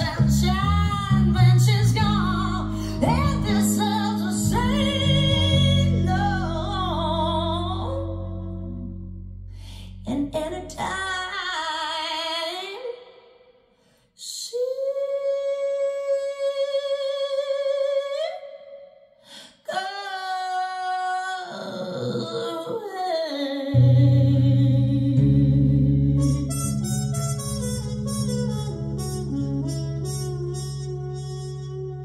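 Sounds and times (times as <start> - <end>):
woman singing with vibrato: 0.0 - 8.9, 9.9 - 13.3, 14.2 - 26.8
deep bass line: 0.0 - 11.1, 23.8 - 32.0.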